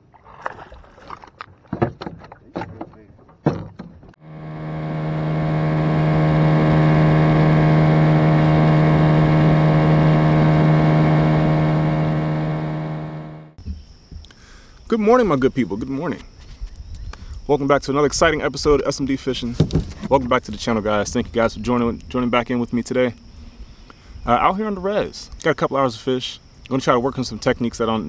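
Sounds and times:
outboard motor droning: 0:04.1 - 0:13.6.

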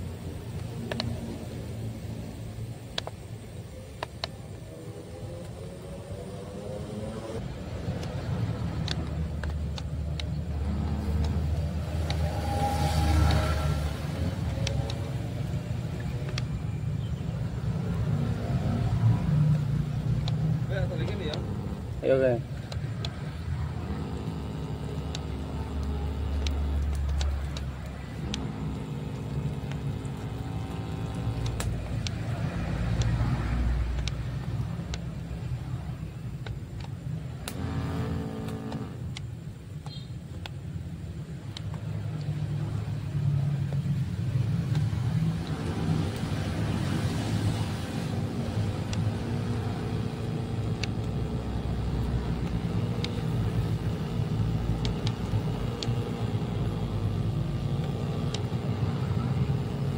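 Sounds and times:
continuous low rumble: 0:00.0 - 0:59.9
motor humming: 0:00.0 - 0:59.9.

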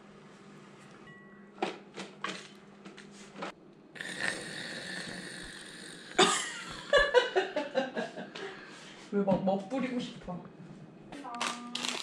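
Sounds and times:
package crinkling: 0:11.4 - 0:12.0.

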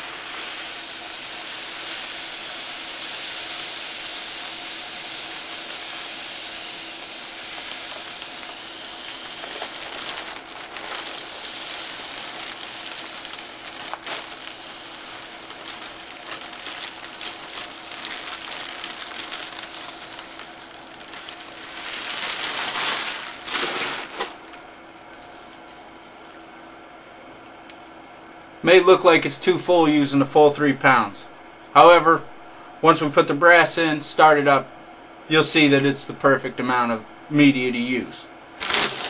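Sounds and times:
dry grains pouring: 0:00.0 - 0:24.4
plastic bag crinkling: 0:04.1 - 0:25.2, 0:38.6 - 0:39.0.

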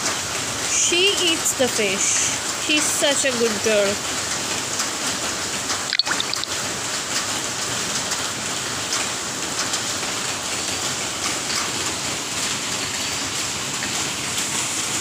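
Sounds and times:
rain on stone paving: 0:00.0 - 0:15.0.

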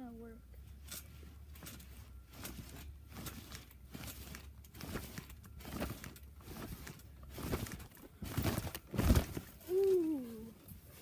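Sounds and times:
trampoline thumps and rustling: 0:00.7 - 0:11.0.

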